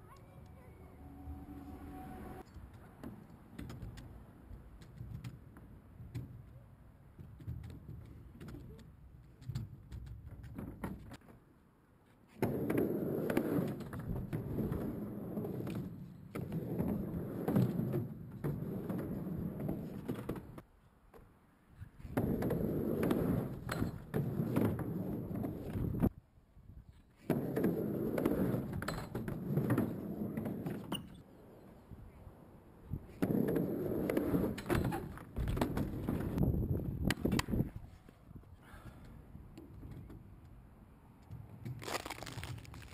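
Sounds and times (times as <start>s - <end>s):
skateboard wheels rolling on ramp: 12.3s - 20.7s, 22.0s - 26.1s, 27.2s - 31.6s, 32.9s - 37.8s.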